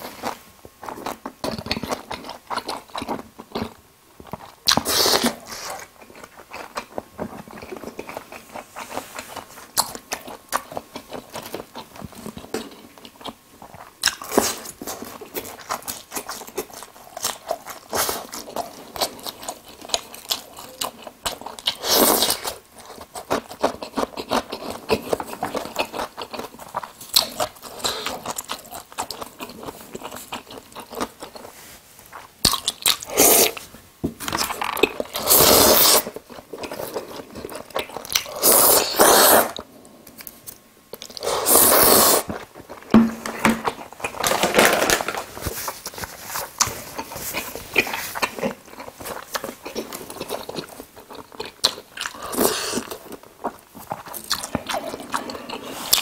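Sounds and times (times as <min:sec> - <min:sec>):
chewing: 0:00.2 - 0:43.0, 0:45.4 - 0:56.0
slurping noodles: 0:35.2 - 0:36.2, 0:38.2 - 0:39.6, 0:41.1 - 0:42.4.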